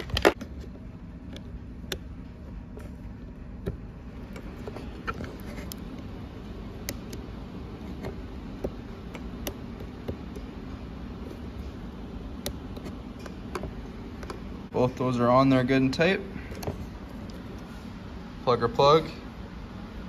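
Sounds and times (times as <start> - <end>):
steady low hum: 0.0 - 20.0
connectors clicking onto terminals: 1.2 - 3.0, 6.7 - 14.5, 16.5 - 17.7.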